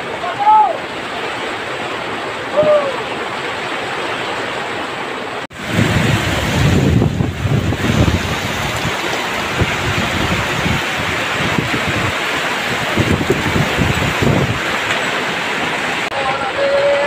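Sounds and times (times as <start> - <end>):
heavy rain downpour: 0.0 - 17.0
wind buffeting microphone: 5.5 - 16.1.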